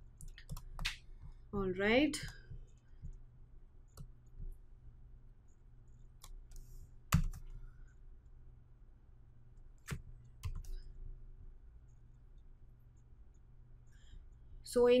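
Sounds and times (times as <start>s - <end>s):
faint low hum: 0.0s - 15.0s
computer mouse and keyboard clicks: 0.2s - 1.4s, 9.8s - 10.8s.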